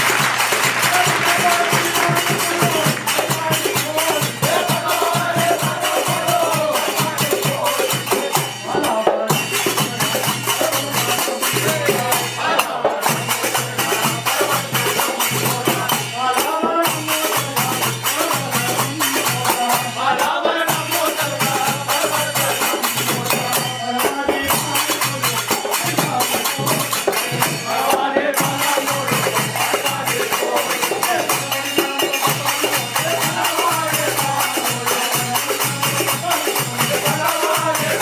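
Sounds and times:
men singing together: 0:00.0 - 0:38.0
small hand cymbals jingling: 0:00.9 - 0:12.4, 0:28.4 - 0:38.0.

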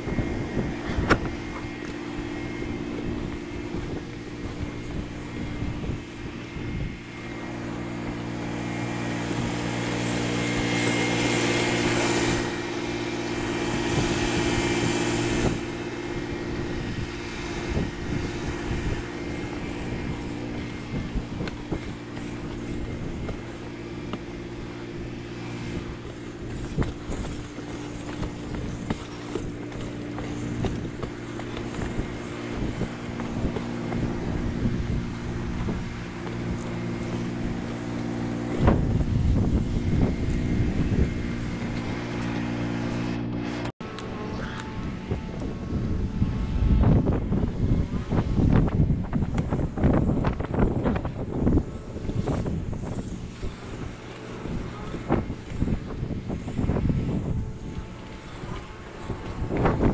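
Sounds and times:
engine droning: 0:00.0 - 0:59.9.

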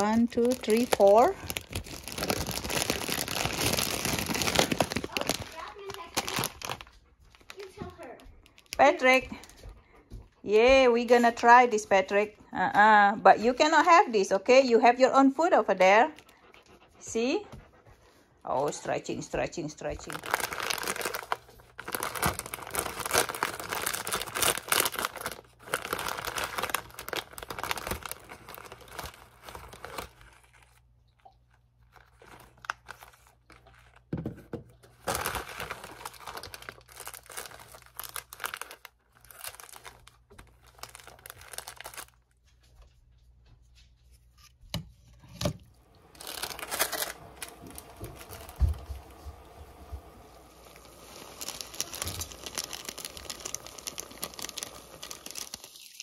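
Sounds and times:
plastic wrapper tearing and crinkling: 0:00.0 - 0:09.6, 0:19.8 - 0:42.6, 0:45.3 - 0:56.0
sachets rustling: 0:00.0 - 0:09.6, 0:19.8 - 0:34.2, 0:34.8 - 0:42.6, 0:45.8 - 0:56.0.

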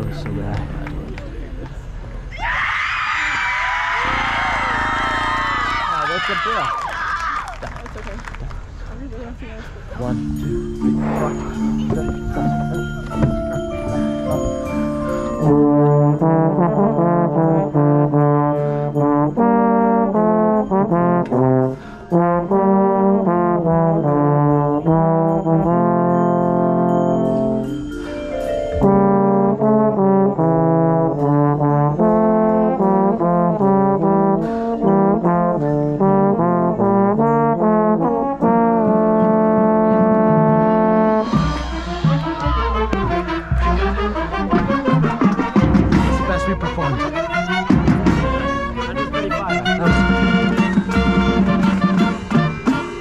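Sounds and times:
brass section playing chords: 0:10.0 - 0:27.8, 0:28.7 - 0:53.0.

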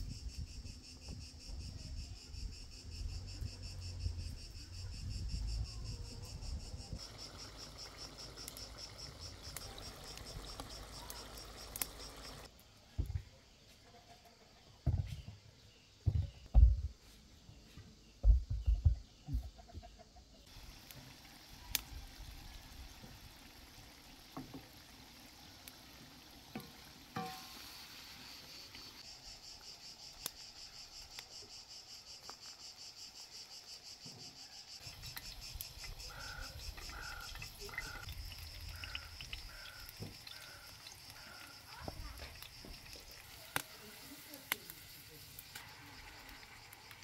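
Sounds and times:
insects chirping: 0:00.0 - 0:47.0.

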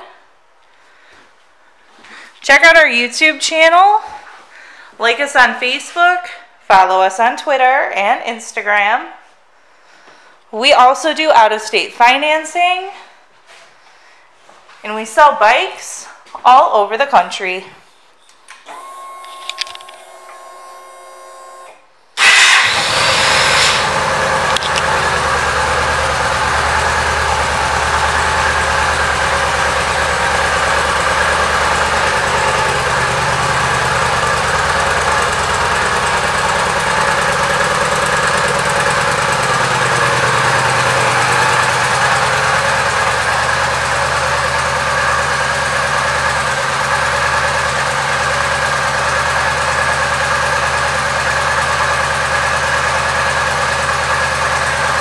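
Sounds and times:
motorcycle engine idling: 0:22.3 - 0:55.0.

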